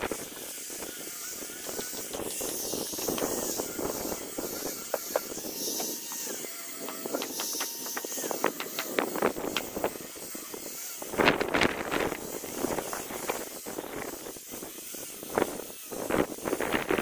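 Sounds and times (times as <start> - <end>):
power tool motor whine: 0.0 - 17.0
sharp knocks and clicks: 4.9 - 9.7.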